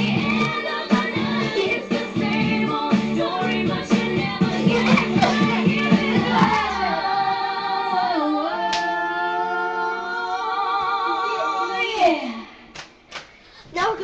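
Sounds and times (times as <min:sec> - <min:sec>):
steady beat: 0:00.0 - 0:07.0
woman singing: 0:00.0 - 0:12.5.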